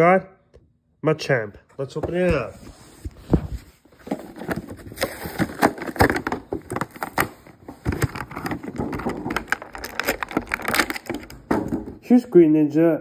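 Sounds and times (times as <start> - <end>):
packaging rustling and crinkling: 3.1 - 11.5
plastic packaging clicks: 4.9 - 11.5.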